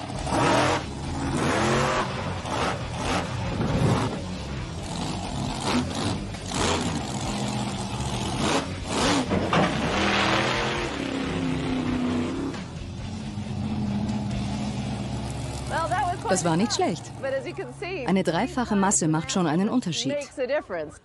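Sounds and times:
truck engine revving: 0:00.0 - 0:18.8
car being crushed: 0:09.2 - 0:10.3.

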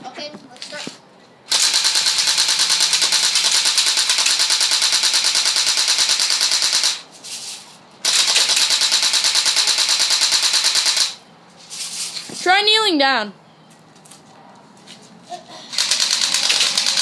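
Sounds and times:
airsoft gun firing full auto: 0:01.5 - 0:07.0, 0:08.0 - 0:11.2, 0:15.8 - 0:17.0.

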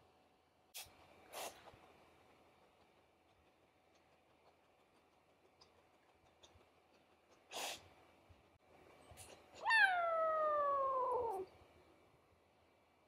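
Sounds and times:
breathy puff: 0:07.5 - 0:07.9
kitten meowing: 0:09.6 - 0:11.5.

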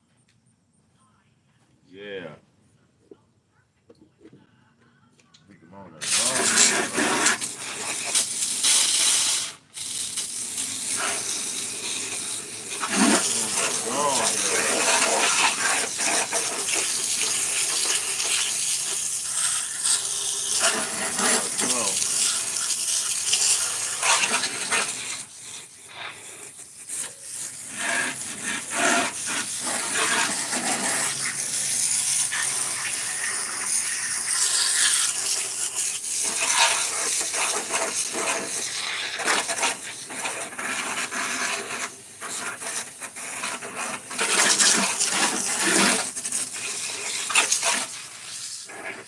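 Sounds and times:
hose water spraying and splashing: 0:06.0 - 0:49.0.

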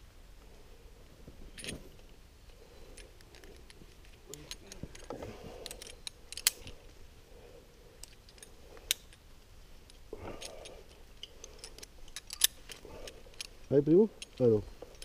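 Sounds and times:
metal climbing gear clinking: 0:01.4 - 0:07.0, 0:07.9 - 0:15.0.

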